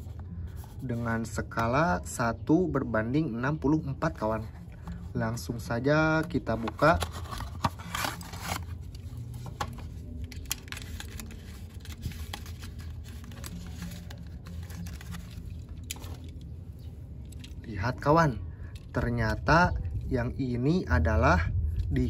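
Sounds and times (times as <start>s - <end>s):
cardboard box opening: 6.2s - 16.4s.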